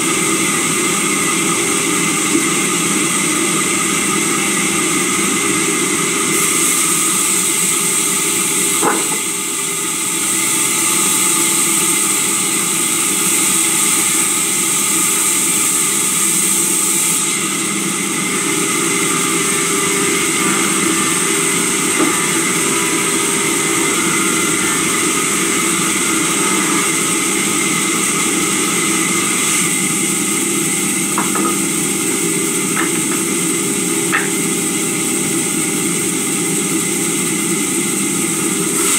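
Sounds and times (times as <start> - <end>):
sawmill machine drone: 0.0 - 38.9
sharp wood knocks: 8.8 - 9.2, 34.1 - 34.4.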